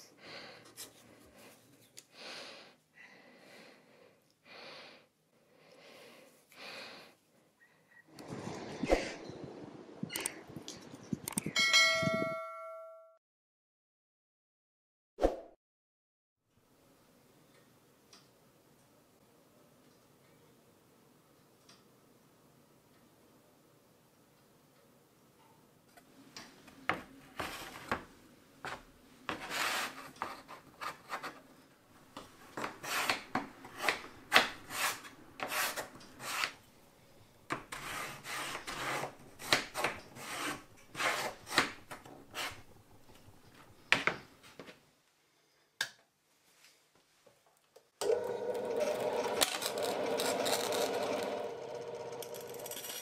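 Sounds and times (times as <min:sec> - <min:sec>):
bandsaw cutting hardboard: 0:32.6 - 0:36.6, 0:37.5 - 0:42.7, 0:48.5 - 0:53.0.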